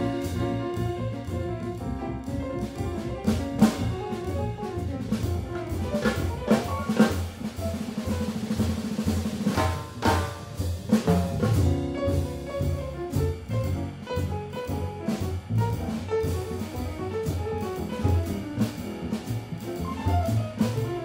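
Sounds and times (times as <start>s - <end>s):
jazz drum kit: 0.0s - 21.0s
piano: 0.0s - 21.0s
walking double bass: 0.0s - 21.0s.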